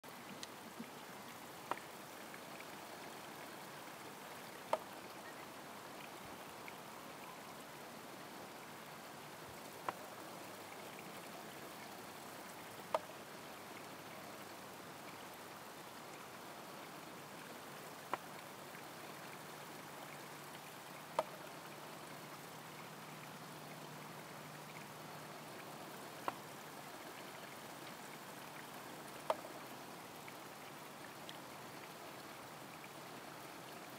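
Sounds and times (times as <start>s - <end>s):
water trickling onto stones: 0.1s - 33.9s
bamboo tube clicking: 29.3s - 29.5s.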